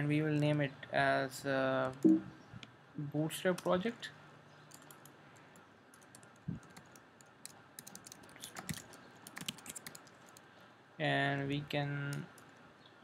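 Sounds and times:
typing on computer keyboard: 0:04.7 - 0:05.1, 0:05.9 - 0:10.4.

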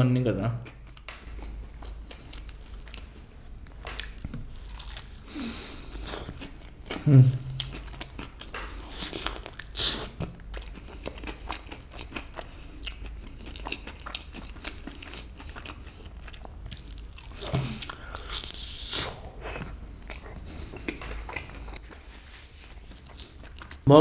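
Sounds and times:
biting and chewing crunches: 0:00.6 - 0:21.9.

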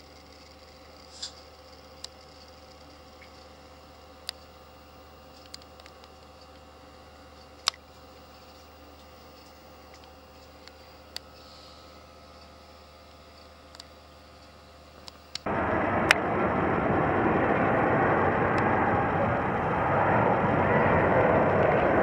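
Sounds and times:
airliner passing overhead: 0:15.5 - 0:22.0.

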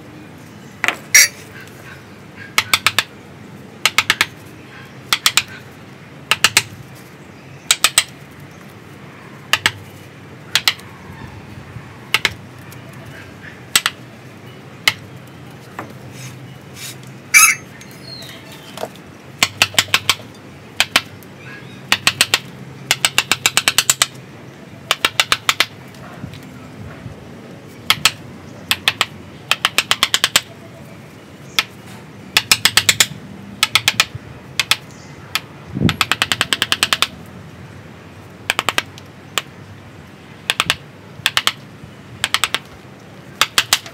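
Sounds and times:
mallet tapping steel chisel: 0:03.8 - 0:04.3, 0:05.1 - 0:05.5, 0:10.6 - 0:10.8, 0:13.8 - 0:14.0.

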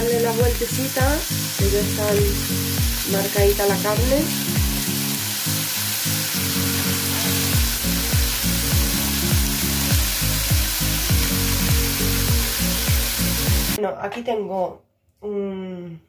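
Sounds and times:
music with kick drum and bass: 0:00.0 - 0:04.9, 0:06.9 - 0:13.8
meat sizzling in a frying pan: 0:00.0 - 0:13.8.

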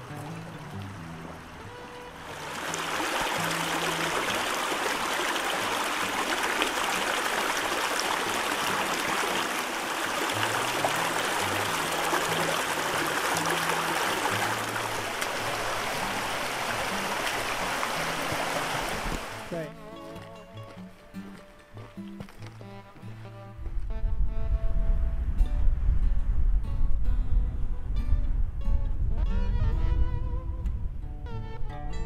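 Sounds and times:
creek running over rocks: 0:00.0 - 0:23.0.

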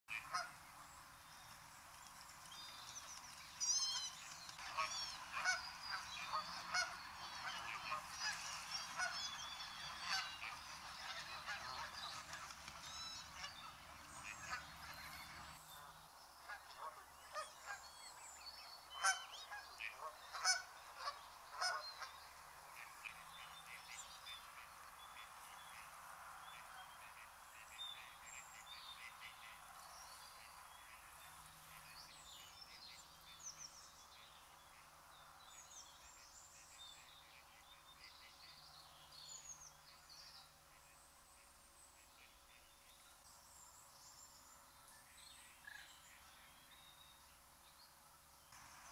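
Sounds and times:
geese honking: 0:04.6 - 0:15.6, 0:19.0 - 0:21.8.

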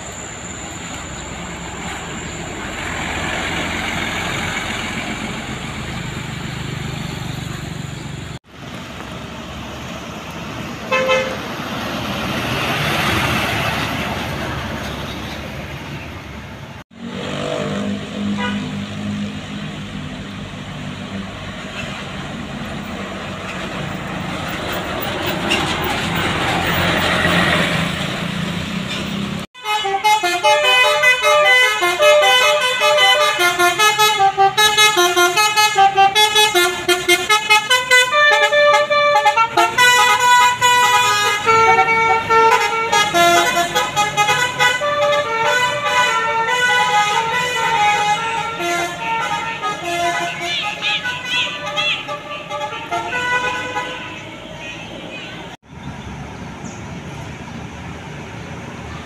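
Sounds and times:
bus engine and tyres passing: 0:00.0 - 0:59.0
multi-tone bus horn tune: 0:10.8 - 0:11.6, 0:17.2 - 0:19.4, 0:29.5 - 0:55.6.

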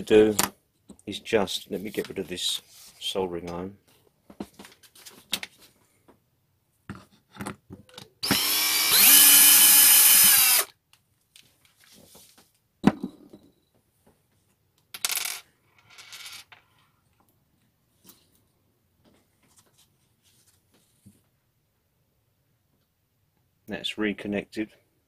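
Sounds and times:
power tool motor whining: 0:08.2 - 0:10.7.

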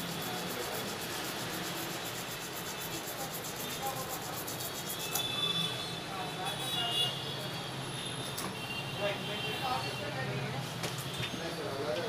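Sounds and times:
toothbrush scrubbing: 0:00.0 - 0:05.3.

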